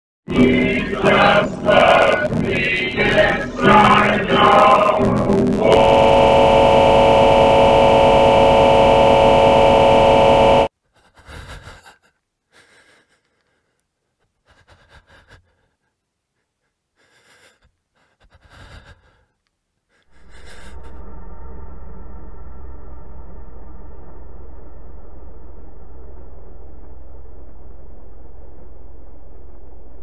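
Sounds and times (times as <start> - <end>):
low steady drone: 0.3 - 10.7, 20.1 - 30.0
loud sustained chord: 3.3 - 10.7
faint gasping breaths: 10.9 - 21.0.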